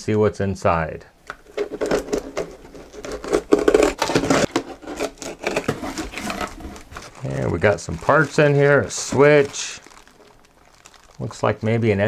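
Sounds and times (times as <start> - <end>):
knife cutting tape on cardboard: 1.8 - 6.7.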